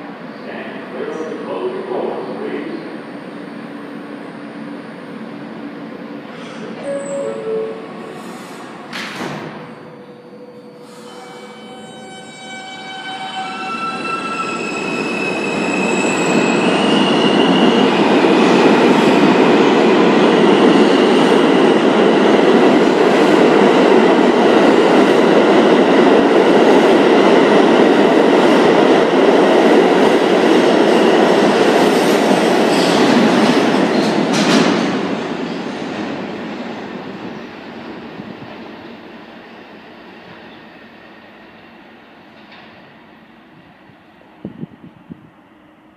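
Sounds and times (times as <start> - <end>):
train wheels rumbling on rail: 13.2 - 45.4.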